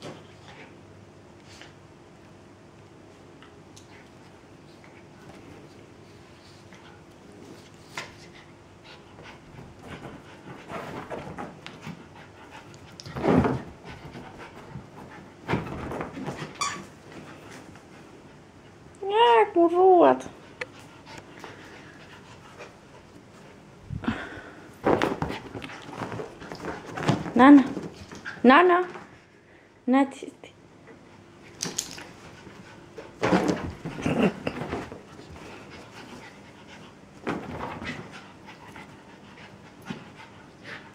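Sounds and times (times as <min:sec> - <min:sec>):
scuffling during play: 0:24.8 - 0:29.1.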